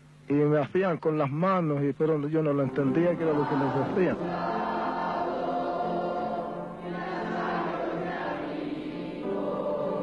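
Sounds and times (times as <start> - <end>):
choir singing sustained chords: 2.4 - 10.0.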